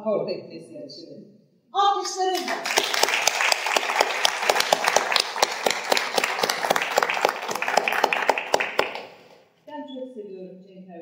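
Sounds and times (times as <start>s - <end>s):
audience applauding: 2.3s - 9.3s.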